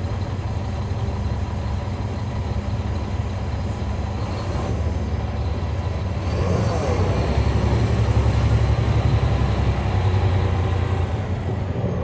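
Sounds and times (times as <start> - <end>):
bus diesel engine droning: 0.0 - 12.0.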